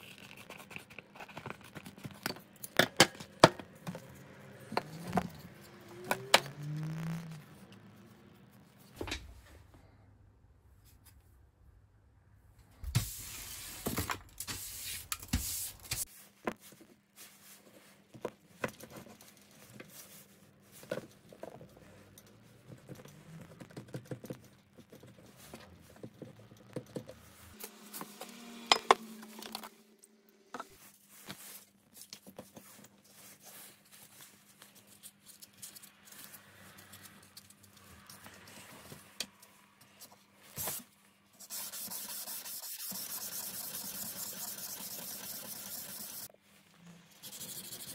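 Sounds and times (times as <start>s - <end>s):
sandpaper rasping on steel blade: 41.4s - 46.3s, 47.2s - 47.9s.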